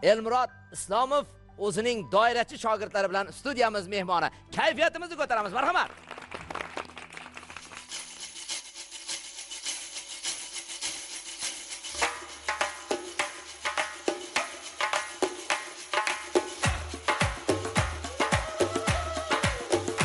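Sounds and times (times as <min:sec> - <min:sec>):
frame drums with jingling rings: 0:07.9 - 0:20.0.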